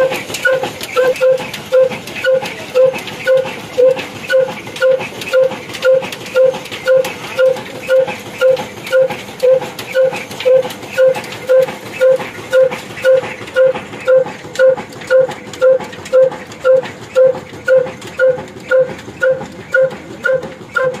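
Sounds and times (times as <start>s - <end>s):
diesel engine thumping: 0.0s - 21.0s.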